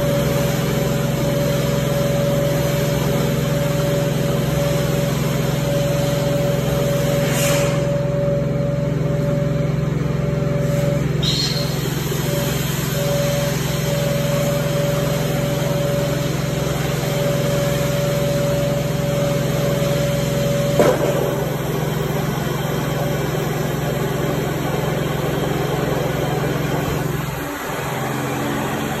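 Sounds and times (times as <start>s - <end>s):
cleaning machine humming: 0.0s - 29.0s
steady whistle: 10.4s - 16.5s.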